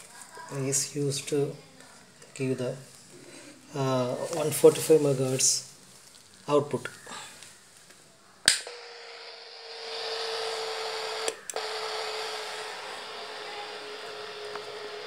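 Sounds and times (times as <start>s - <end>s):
electronic whine and hiss: 3.7s - 15.0s
wall switch click: 8.5s - 8.7s.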